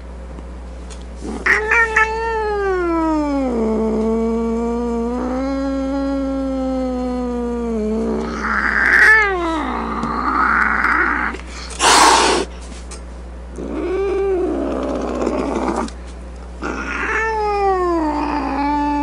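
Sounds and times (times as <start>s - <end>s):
cat hissing: 1.2s - 4.0s, 5.1s - 12.5s
cat yowling: 1.3s - 4.0s, 4.8s - 12.4s, 16.6s - 19.0s.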